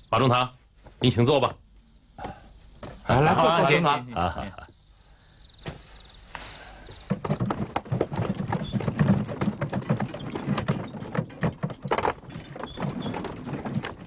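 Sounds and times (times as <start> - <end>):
horse hooves on stone paving: 6.8 - 14.0.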